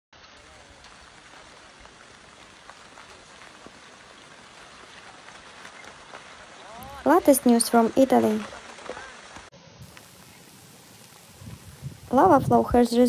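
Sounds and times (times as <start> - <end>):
lava crackling: 0.2 - 13.0
steady hiss: 0.2 - 13.0.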